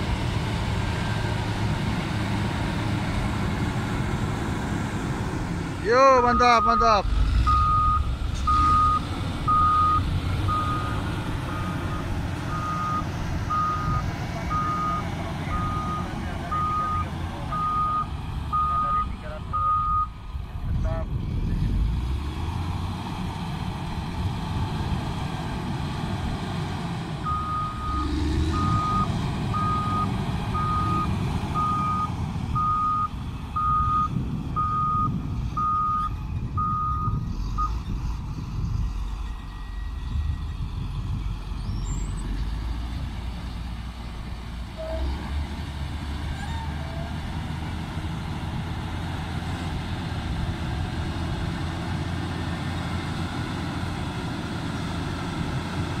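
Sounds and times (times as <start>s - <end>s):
diesel engine running under load: 0.0s - 56.0s
reversing alarm beeping: 6.2s - 20.1s, 27.2s - 37.7s.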